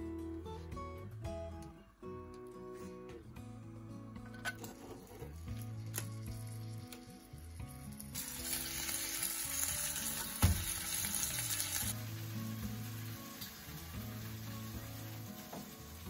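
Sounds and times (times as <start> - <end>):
soft background music: 0.0 - 16.0
bacon sizzling in a frying pan: 5.7 - 16.0.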